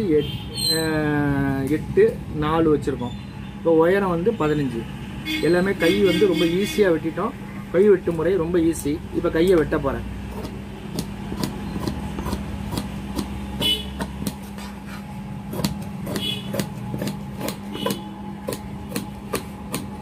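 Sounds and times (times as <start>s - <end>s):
steady low hum: 7.0s - 20.0s
shears snipping fabric: 10.3s - 20.0s.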